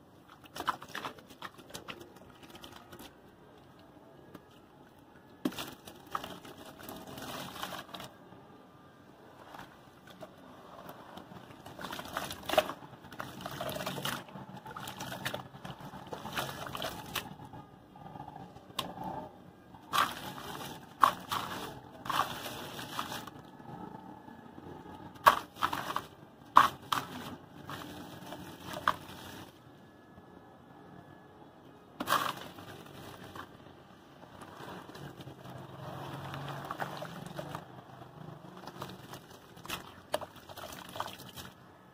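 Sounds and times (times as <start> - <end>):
hands squeezing wet cement in water: 0.2 - 3.2, 5.4 - 8.2, 9.4 - 17.6, 19.8 - 23.5, 25.1 - 29.5, 34.3 - 37.8, 38.5 - 41.5
cement pieces snapping and splashing: 0.3 - 3.1, 5.4 - 8.1, 11.4 - 17.3, 19.9 - 23.3, 25.1 - 29.3, 32.0 - 33.4, 38.6 - 41.6.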